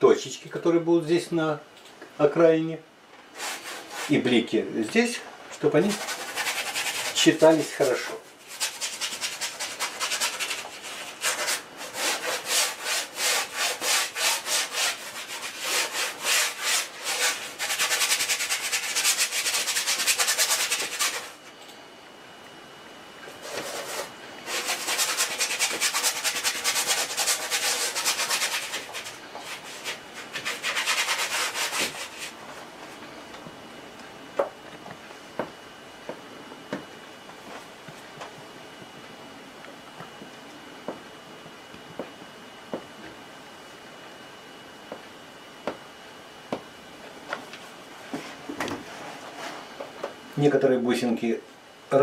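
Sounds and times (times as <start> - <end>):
bristle brush scrubbing canvas: 5.8 - 21.4, 23.4 - 32.4.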